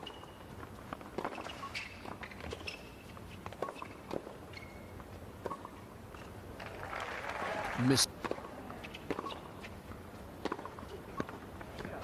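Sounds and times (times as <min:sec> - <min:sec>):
shoe squeaks on court: 0:01.2 - 0:06.3
tennis ball bounces: 0:08.2 - 0:09.5, 0:10.4 - 0:12.0
tennis racquet strikes: 0:10.4 - 0:11.4.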